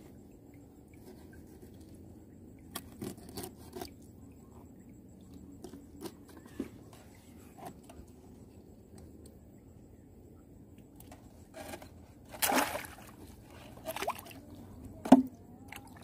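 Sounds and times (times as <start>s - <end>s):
light clicks and scrapes: 0.8s - 9.3s, 11.0s - 12.4s.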